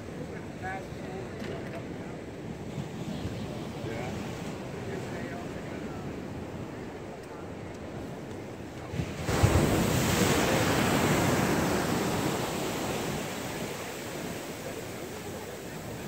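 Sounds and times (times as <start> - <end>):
ocean surf: 0.0 - 16.0
wave breaking: 8.8 - 16.0.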